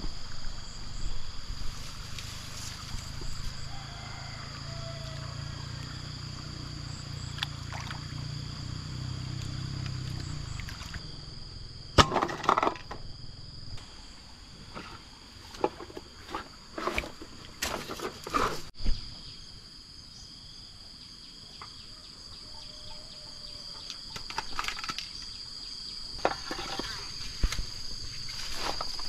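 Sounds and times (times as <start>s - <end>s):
high insect drone: 0.0s - 29.0s
water sloshing: 7.3s - 8.2s, 10.1s - 11.1s
bottles clattering and rustling: 14.7s - 18.7s, 26.2s - 27.2s.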